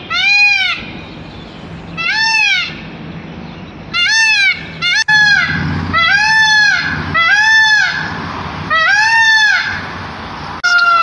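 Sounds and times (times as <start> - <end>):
peacock calling: 0.0 - 11.0.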